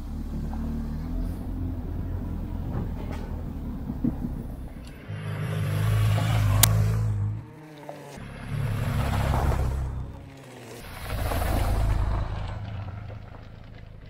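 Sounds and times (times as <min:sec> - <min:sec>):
motorcycle engine running: 0:00.0 - 0:14.0
rushing noise: 0:08.2 - 0:14.0.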